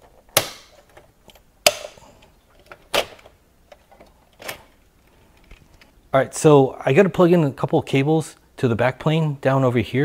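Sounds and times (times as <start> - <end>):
sharp latch clicks: 0.3 - 2.0, 2.6 - 4.7.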